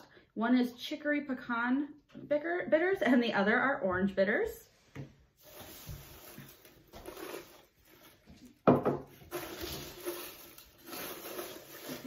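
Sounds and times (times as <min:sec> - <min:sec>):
paper packing filler rustling: 0:05.4 - 0:12.0.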